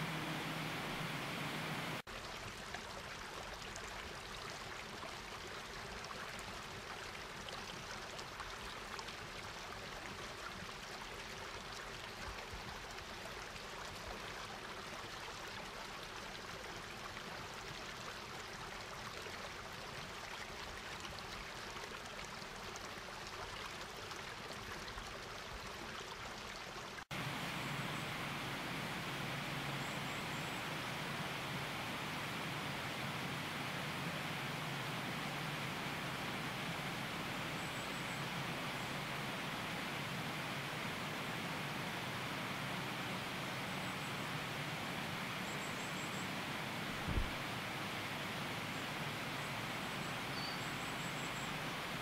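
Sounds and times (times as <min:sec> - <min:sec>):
water rushing over rocks: 0:00.0 - 0:02.1, 0:27.1 - 0:52.0.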